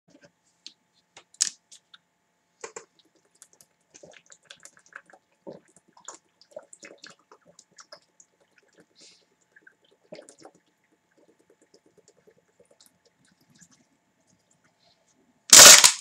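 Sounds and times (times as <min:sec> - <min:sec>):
person gulping water: 0:02.6 - 0:14.4.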